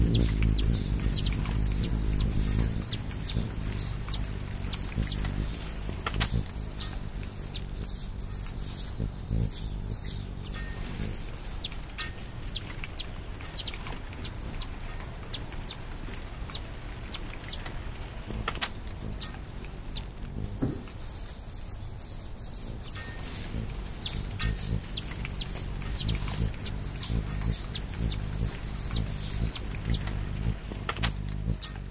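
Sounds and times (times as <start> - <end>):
low rumble: 0.0 - 11.2
insect trill: 0.0 - 31.9
short chirps and clicks: 23.0 - 31.9.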